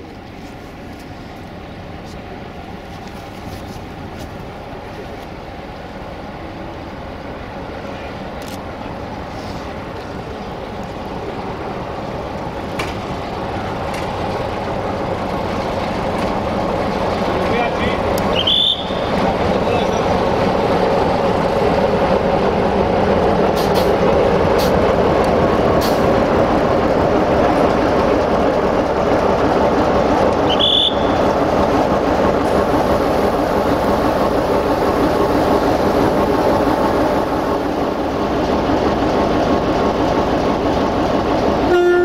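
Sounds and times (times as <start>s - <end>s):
diesel locomotive running: 0.0s - 42.0s.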